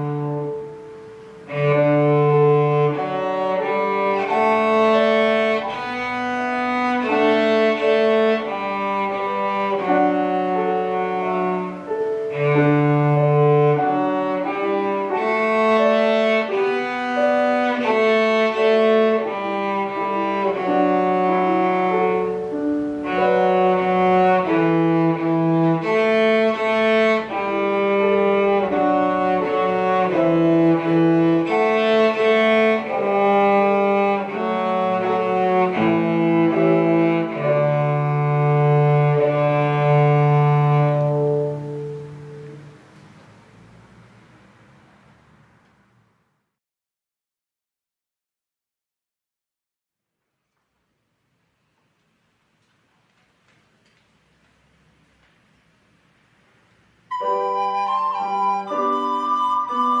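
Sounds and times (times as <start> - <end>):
cello playing bowed melody: 0.0 - 44.5, 57.1 - 60.0
piano: 0.0 - 45.5, 56.6 - 60.0.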